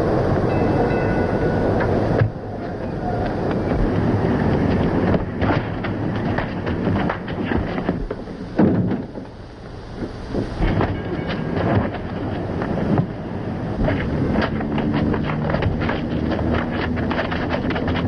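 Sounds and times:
steady rushing noise: 0.0s - 18.0s
fistfight scuffling and knocks: 3.7s - 9.3s, 10.0s - 13.2s, 13.8s - 18.0s.

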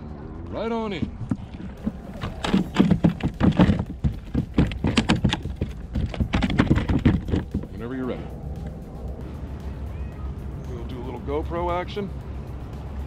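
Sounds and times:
fish flopping on kayak hull: 1.0s - 7.6s.

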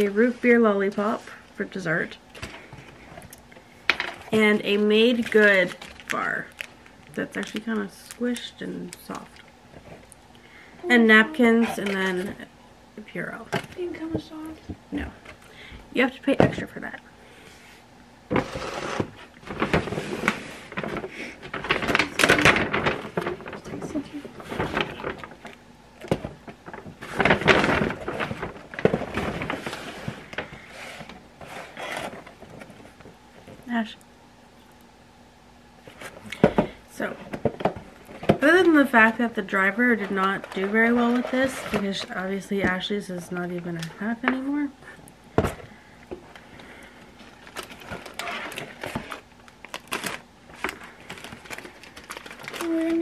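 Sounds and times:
paper packaging rustling: 4.2s - 9.3s, 18.3s - 33.0s, 38.1s - 42.4s, 47.2s - 53.0s.

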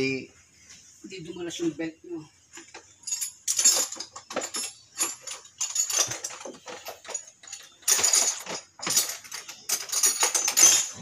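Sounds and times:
light clinks: 2.7s - 11.0s.

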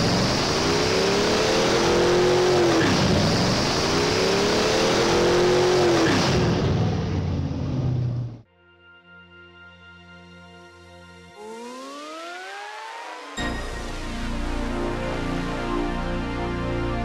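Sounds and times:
car engine revving: 0.0s - 8.4s, 11.4s - 13.4s.

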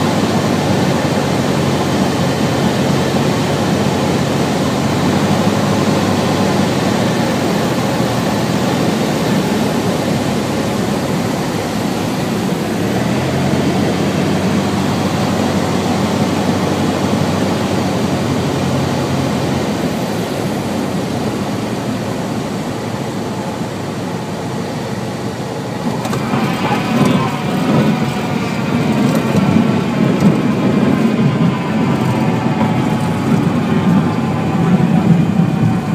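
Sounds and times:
airflow noise: 0.0s - 35.9s
airplane engine and propeller drone: 0.0s - 35.9s.

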